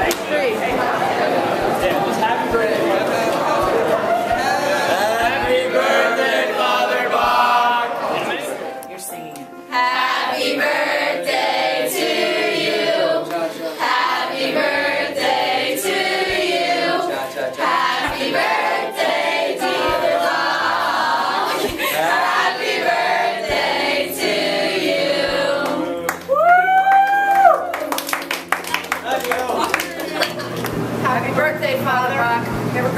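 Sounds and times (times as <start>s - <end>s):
choir of mixed voices singing: 0.0s - 8.9s, 9.6s - 26.3s
person whooping: 26.3s - 28.0s.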